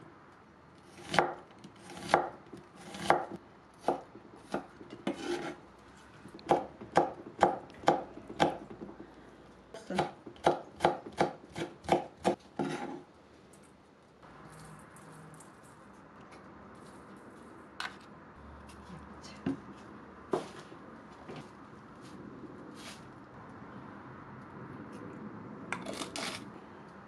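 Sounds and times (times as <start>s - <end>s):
knife chopping on wooden board: 1.0s - 5.6s, 6.4s - 8.8s, 9.9s - 13.0s.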